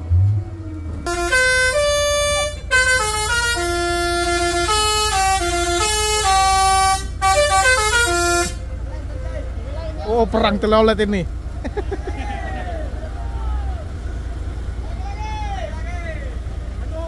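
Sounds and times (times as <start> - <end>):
truck engine running: 0.0 - 17.0
musical air horn melody: 1.0 - 8.7.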